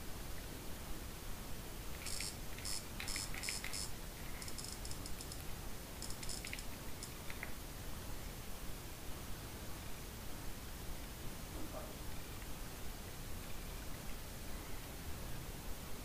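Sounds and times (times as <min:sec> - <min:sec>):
trackball high ticks: 0:02.0 - 0:05.4, 0:06.0 - 0:07.4.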